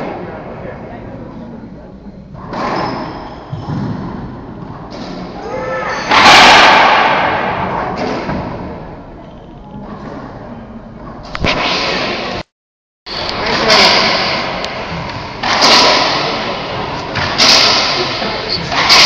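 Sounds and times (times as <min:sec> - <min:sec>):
sneakers squeaking on hardwood floor: 0:02.6 - 0:04.0.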